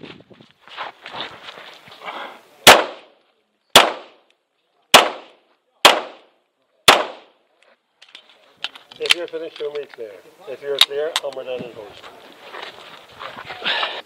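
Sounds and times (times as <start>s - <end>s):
scuffing from movement: 0.0s - 2.4s, 11.5s - 14.0s
pistol shots: 2.6s - 4.2s, 4.9s - 6.3s, 6.9s - 7.4s.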